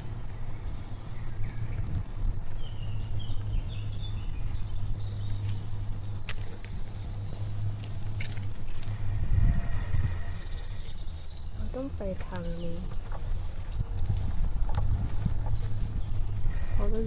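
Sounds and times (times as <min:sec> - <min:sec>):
wind and bicycle riding noise: 0:00.0 - 0:17.0
faint bird chirps: 0:00.2 - 0:17.0.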